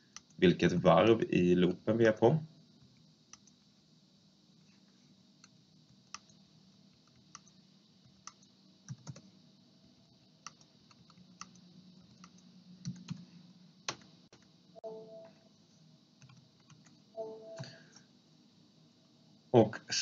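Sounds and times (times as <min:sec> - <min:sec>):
low steady hum: 0:00.0 - 0:20.0
keyboard and mouse clicking: 0:03.3 - 0:03.6, 0:07.1 - 0:07.6, 0:08.2 - 0:09.3, 0:10.4 - 0:13.2, 0:13.9 - 0:14.5, 0:16.2 - 0:17.0.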